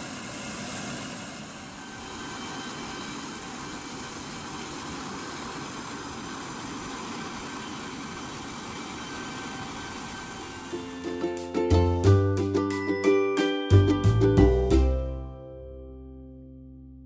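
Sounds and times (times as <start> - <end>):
faint high whine: 0.0 - 11.8
jet turbine rushing: 0.0 - 11.8.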